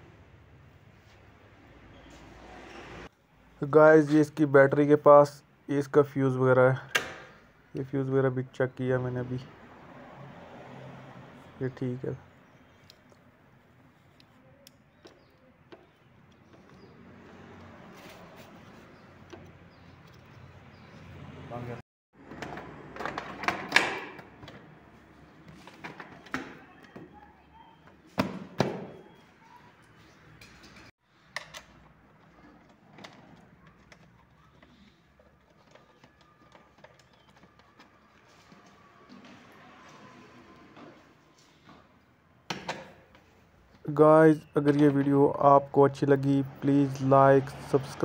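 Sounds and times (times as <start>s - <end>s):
clicks and knocks of handling parts: 30.4s - 39.3s.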